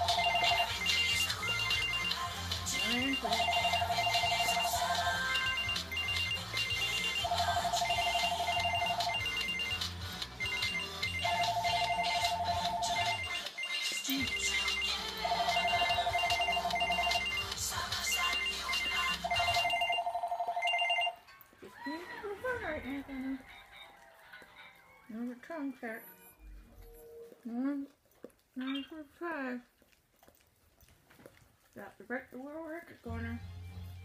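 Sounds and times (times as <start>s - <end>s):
trilling electronic ring tone: 0.0s - 2.2s, 2.8s - 21.3s.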